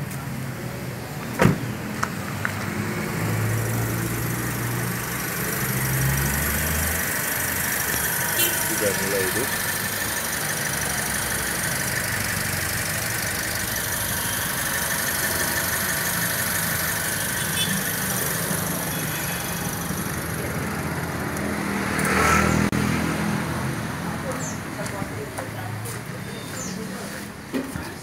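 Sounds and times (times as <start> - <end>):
car engine idling: 0.4 - 22.1.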